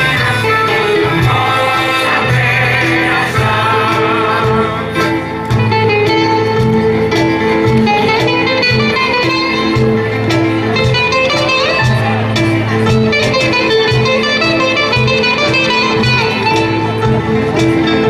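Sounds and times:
mixed choir singing folk song: 0.0 - 5.5
keyboard accompaniment: 0.0 - 18.0
plucked strings: 0.0 - 18.0
repeating bass line: 0.0 - 18.0.

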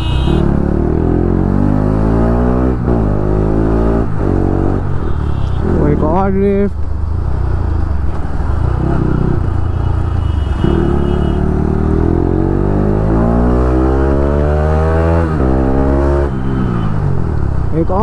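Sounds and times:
motorcycle engine accelerating: 0.0 - 4.9, 10.6 - 17.4.

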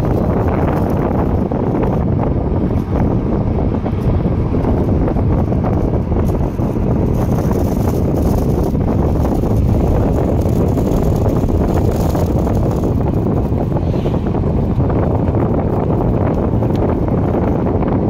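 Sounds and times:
road and engine rumble: 0.0 - 18.0
wind buffeting microphone: 0.0 - 18.0.

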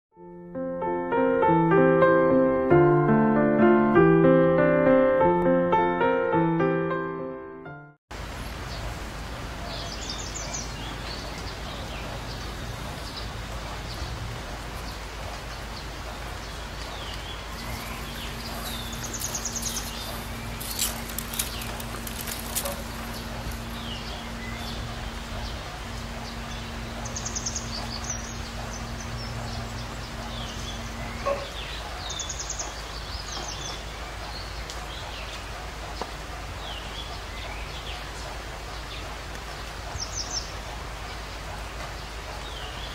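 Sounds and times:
small birds chirping: 9.5 - 42.9
dry leaves crackling: 17.5 - 31.8
steady low hum: 17.5 - 32.0.

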